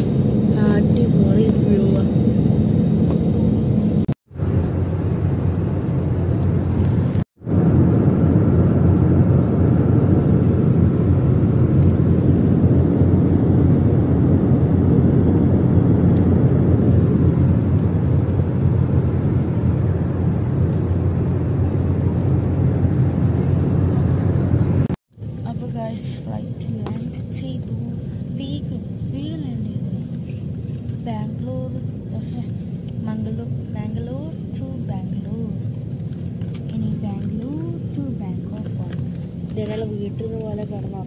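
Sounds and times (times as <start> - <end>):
jet cabin engine rumble: 0.0 - 41.0.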